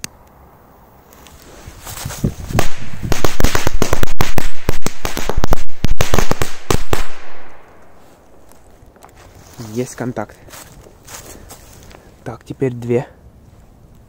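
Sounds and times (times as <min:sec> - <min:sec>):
firecrackers banging: 0:02.5 - 0:07.8.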